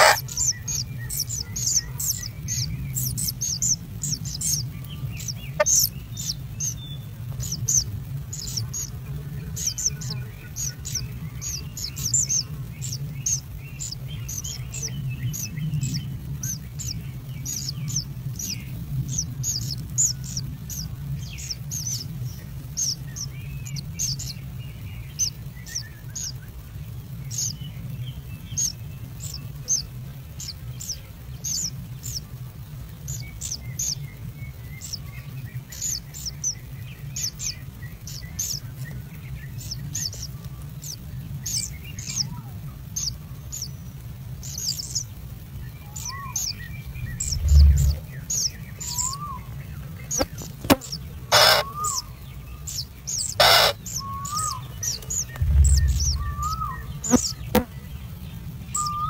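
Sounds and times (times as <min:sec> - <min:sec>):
nestlings chirping: 0:00.0 - 0:59.0
steady low hum: 0:46.6 - 0:59.0.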